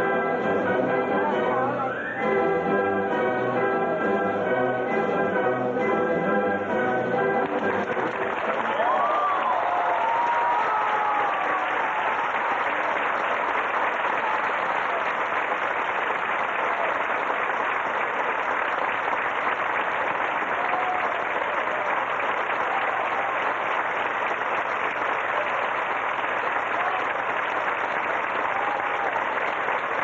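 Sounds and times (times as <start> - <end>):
audience applauding: 6.7 - 30.0.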